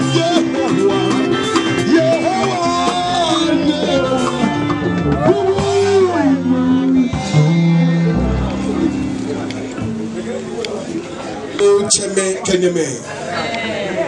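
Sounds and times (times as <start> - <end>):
man singing into microphone: 0.0 - 9.5
drum kit: 0.0 - 10.8
guitar: 0.0 - 14.0.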